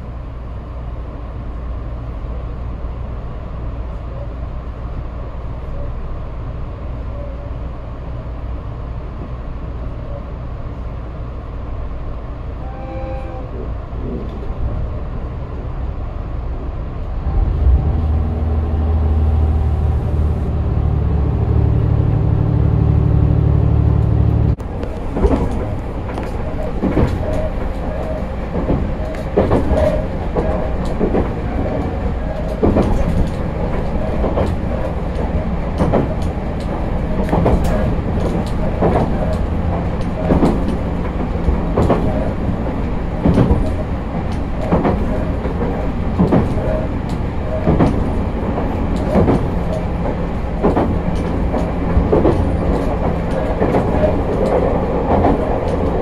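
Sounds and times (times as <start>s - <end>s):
train running gear rumble: 0.0s - 56.0s
diesel engine drone: 13.6s - 56.0s
wheels clicking over rail joints: 24.6s - 56.0s.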